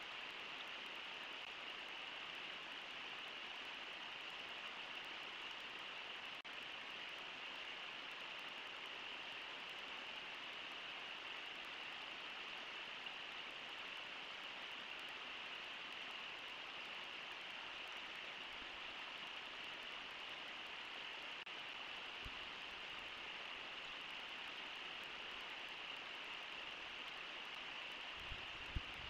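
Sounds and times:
river water flowing over rocks: 0:00.0 - 0:29.0.

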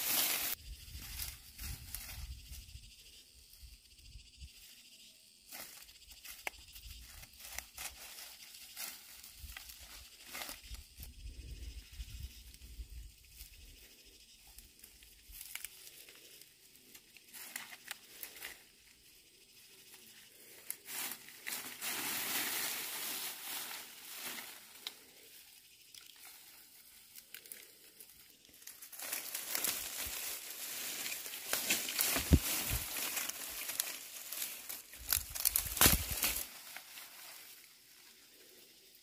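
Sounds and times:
dry leaves rustling and crackling: 0:00.0 - 0:02.6, 0:07.0 - 0:10.8, 0:20.4 - 0:25.1, 0:28.5 - 0:37.7.

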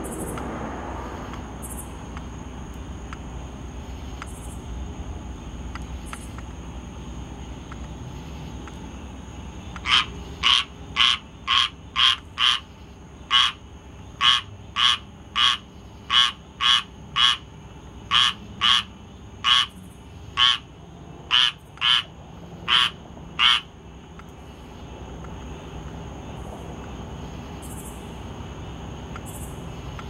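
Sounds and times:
tree frog calling: 0:05.3 - 0:28.1.

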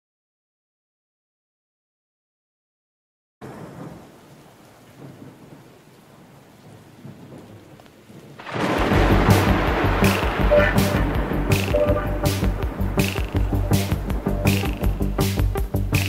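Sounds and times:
faint rain-like hiss: 0:03.4 - 0:16.0
thunder rumble: 0:03.4 - 0:16.0
soundtrack music: 0:08.8 - 0:16.0.

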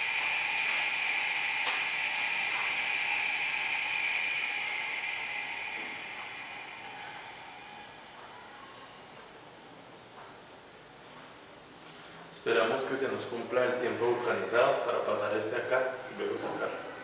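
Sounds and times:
compressed air hissing: 0:00.0 - 0:08.9.

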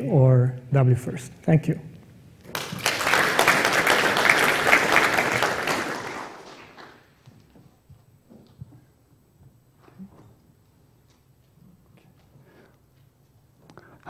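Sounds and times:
audience applauding: 0:02.5 - 0:07.2.

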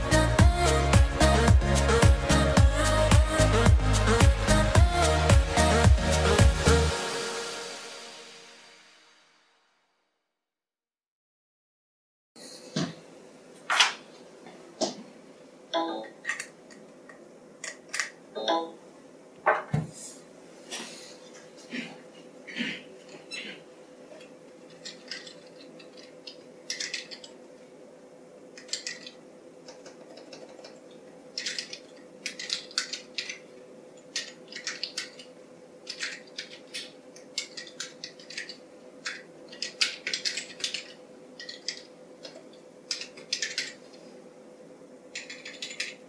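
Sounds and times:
mechanical keyboard typing: 0:45.2 - 0:45.9.

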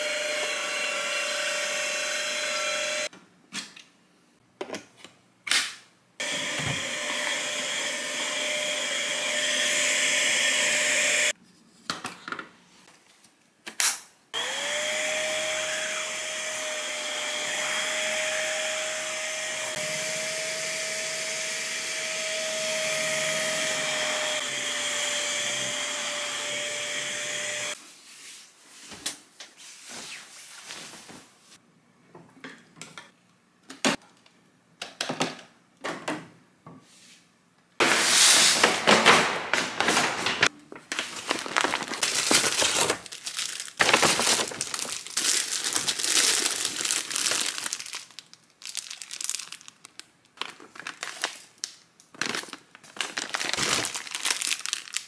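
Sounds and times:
vacuum cleaner motor whine: 0:00.0 - 0:03.1, 0:06.2 - 0:11.3, 0:14.4 - 0:27.8
paper bag crinkling: 0:39.5 - 0:55.0.

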